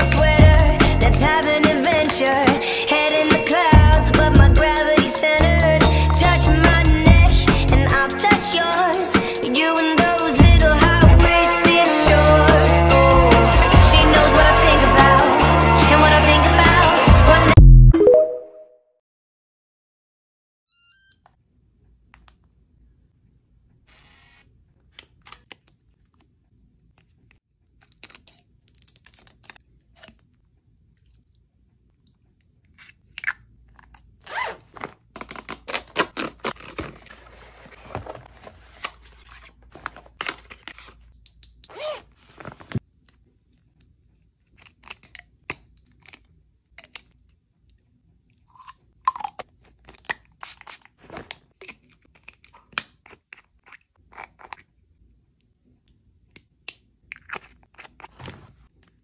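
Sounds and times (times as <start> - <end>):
plastic pouch crinkling: 33.7 - 42.8.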